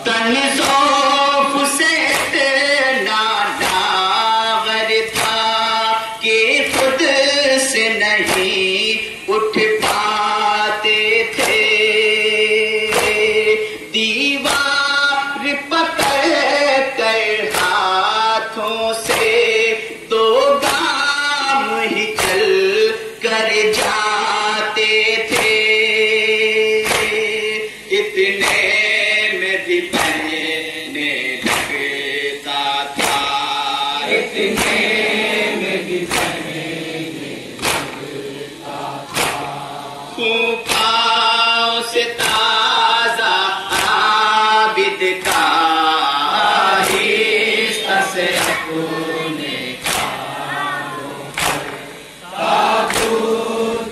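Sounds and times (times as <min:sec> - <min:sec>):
men chanting together: 0:00.0 - 0:53.9
hands slapping chest: 0:03.6 - 0:03.9, 0:05.1 - 0:05.4, 0:11.4 - 0:11.7, 0:12.9 - 0:13.3, 0:19.0 - 0:19.4, 0:25.3 - 0:25.7, 0:26.8 - 0:27.2, 0:28.4 - 0:28.8, 0:29.9 - 0:30.4, 0:31.4 - 0:32.0, 0:33.0 - 0:33.4, 0:34.4 - 0:35.1, 0:36.1 - 0:36.6, 0:37.6 - 0:38.1, 0:39.1 - 0:39.6, 0:40.7 - 0:40.9, 0:42.2 - 0:42.5, 0:43.7 - 0:44.2, 0:45.2 - 0:45.6, 0:46.8 - 0:47.2, 0:48.3 - 0:48.7, 0:49.8 - 0:50.2, 0:51.3 - 0:51.9, 0:52.9 - 0:53.2.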